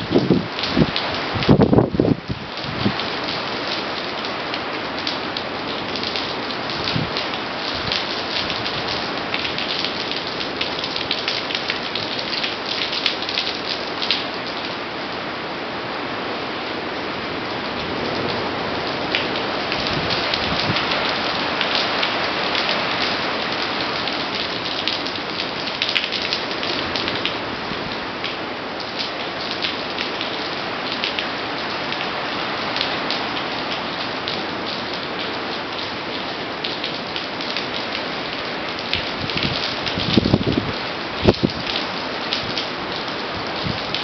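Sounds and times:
strong wind: 0:00.0 - 0:03.4, 0:06.6 - 0:09.6, 0:15.9 - 0:23.9, 0:38.9 - 0:42.6, 0:43.2 - 0:44.0
raindrop splashes: 0:00.0 - 0:14.7, 0:17.5 - 0:44.0
heavy rain: 0:00.0 - 0:44.0.

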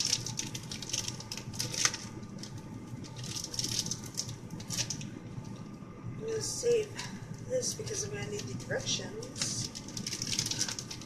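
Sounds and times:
plastic wrapper crinkling: 0:00.0 - 0:05.7, 0:08.2 - 0:11.0.

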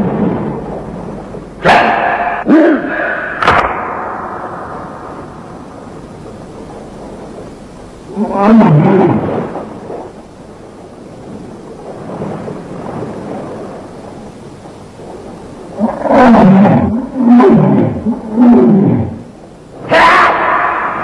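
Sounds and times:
low rumbling background: 0:00.0 - 0:21.0
monster bellowing roars: 0:08.1 - 0:09.3, 0:15.8 - 0:19.2, 0:19.9 - 0:21.0.

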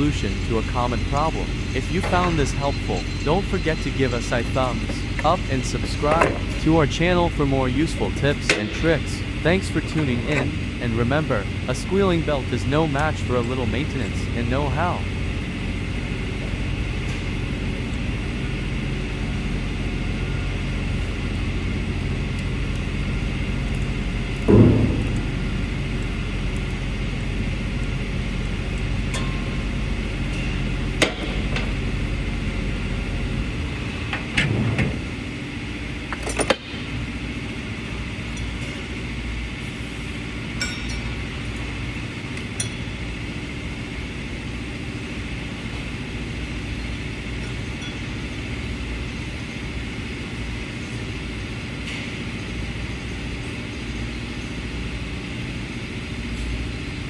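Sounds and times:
low mechanical hum: 0:00.0 - 0:57.0
tools clinking on metal parts: 0:42.6 - 0:42.8.

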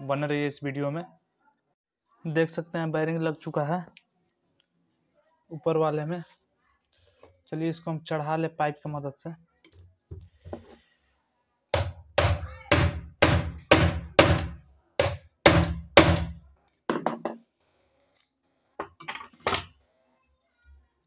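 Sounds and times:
hammer knocking on metal pipe: 0:11.8 - 0:17.4.

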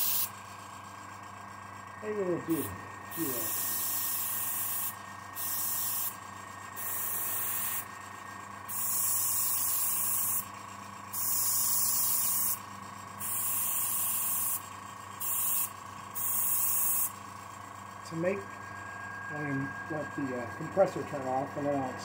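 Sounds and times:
airbrush spraying hiss: 0:00.0 - 0:00.3, 0:02.5 - 0:06.2, 0:06.8 - 0:07.8, 0:08.7 - 0:10.4, 0:11.2 - 0:12.6, 0:13.2 - 0:14.6, 0:15.2 - 0:17.2
air compressor humming: 0:00.0 - 0:22.0.

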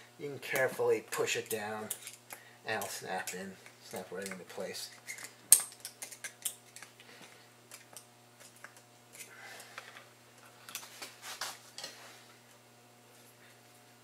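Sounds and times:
small metal parts clicking: 0:05.0 - 0:06.9.

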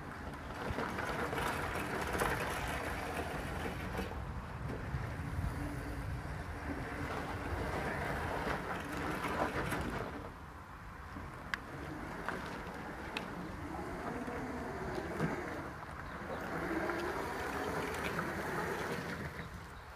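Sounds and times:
wheels rolling over gravel: 0:00.0 - 0:19.9
electric motors whining: 0:11.1 - 0:19.9.

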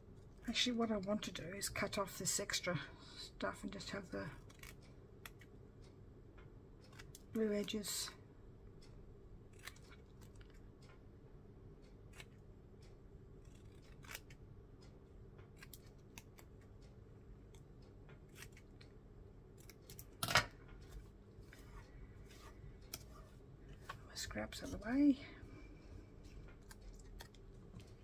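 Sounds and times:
scissors snipping paper: 0:03.8 - 0:05.5, 0:12.1 - 0:12.4, 0:13.4 - 0:14.4, 0:15.4 - 0:16.7, 0:17.5 - 0:18.9.

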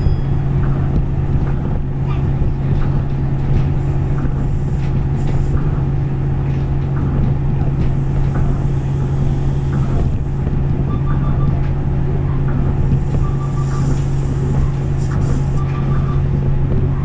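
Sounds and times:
monorail cabin drone: 0:00.0 - 0:17.0
faint short beeps: 0:10.9 - 0:11.6.

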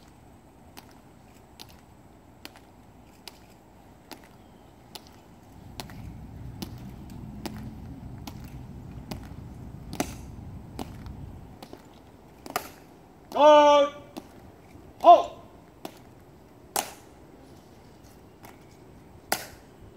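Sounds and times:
marching steps on stone: 0:00.0 - 0:17.0
low rumble: 0:05.6 - 0:11.5.

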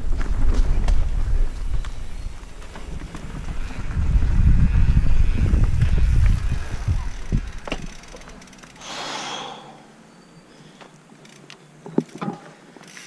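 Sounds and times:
wind rumble on microphone: 0:00.0 - 0:08.1
bike knocks and rattles: 0:00.0 - 0:08.8, 0:11.2 - 0:13.0.

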